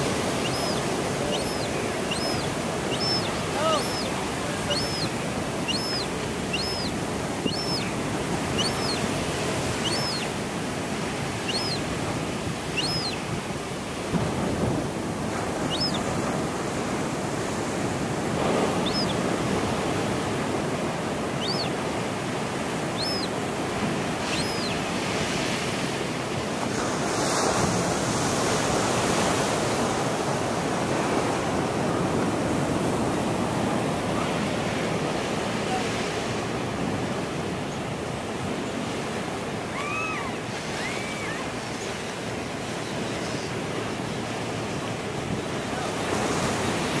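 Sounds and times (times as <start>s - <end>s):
surf breaking on rocks: 0.0s - 37.4s
gull begging cries: 0.1s - 10.5s, 11.3s - 12.0s, 12.6s - 13.3s, 15.6s - 16.1s, 18.7s - 19.3s, 21.3s - 21.8s, 22.8s - 23.4s, 24.2s - 24.9s.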